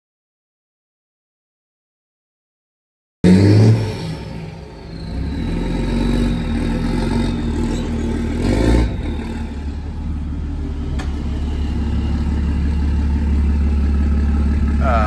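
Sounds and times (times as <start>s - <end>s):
truck engine droning: 3.3s - 15.0s.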